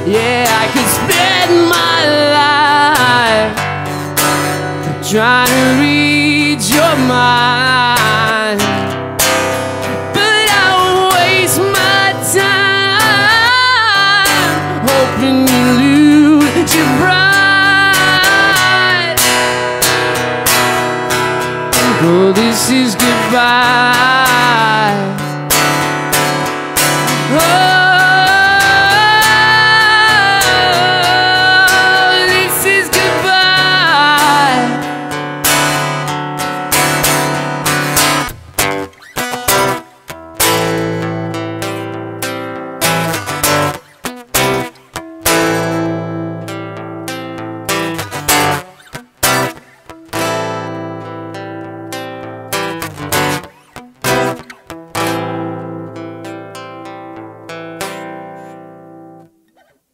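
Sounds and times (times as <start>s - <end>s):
man singing held sliding notes: 0.0s - 3.6s, 4.9s - 8.8s, 10.0s - 19.2s, 21.8s - 25.2s, 27.1s - 34.8s
strummed acoustic guitar: 0.0s - 59.8s.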